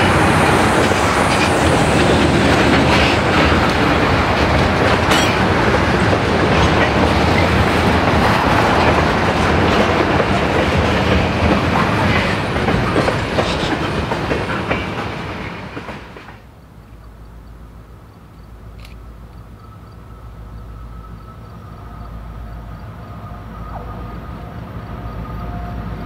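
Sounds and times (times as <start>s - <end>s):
freight train wheels clacking: 0.0s - 16.5s.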